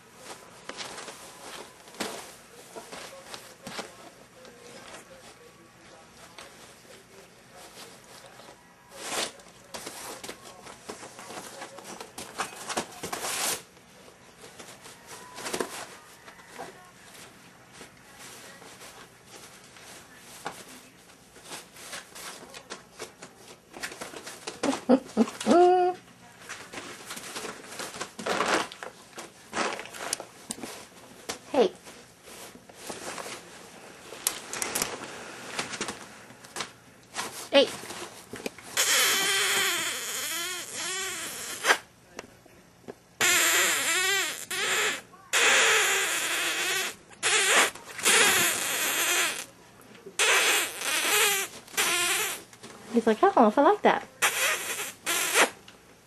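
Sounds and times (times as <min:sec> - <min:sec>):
plastic clicks and crinkles: 0:34.2 - 0:37.2.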